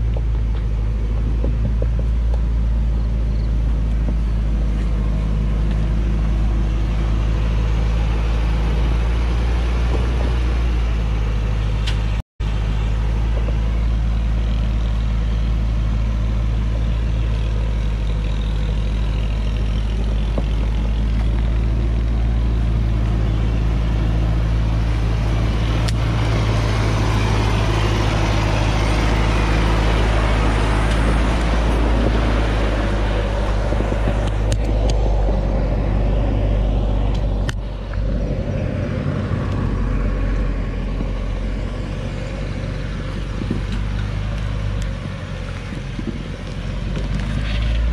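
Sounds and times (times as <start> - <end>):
diesel truck engine running: 0.0 - 47.9.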